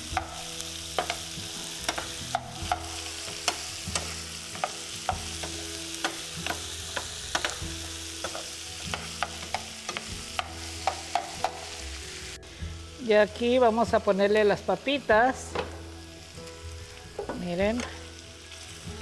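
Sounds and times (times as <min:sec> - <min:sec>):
vegetables sizzling in a skillet: 0:00.0 - 0:19.0
metal spoon clicking against pan: 0:01.8 - 0:04.8, 0:06.0 - 0:07.6.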